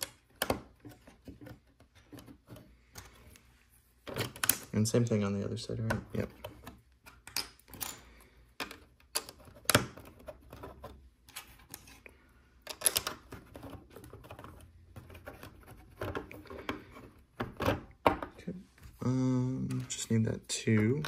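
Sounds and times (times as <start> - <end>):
plastic pieces clicking and snapping: 4.0 - 4.7, 5.9 - 10.7, 12.6 - 14.6.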